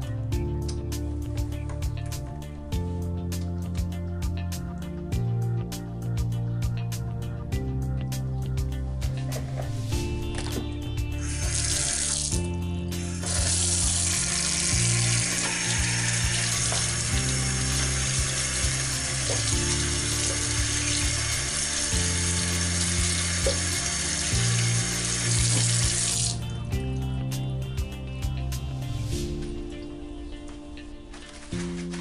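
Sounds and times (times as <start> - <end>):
background music: 0.0 - 32.0
tap water splashing in a sink: 13.2 - 26.4.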